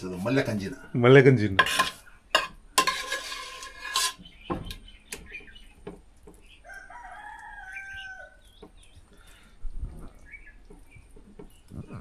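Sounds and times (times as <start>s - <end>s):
rooster crowing: 6.6s - 8.4s.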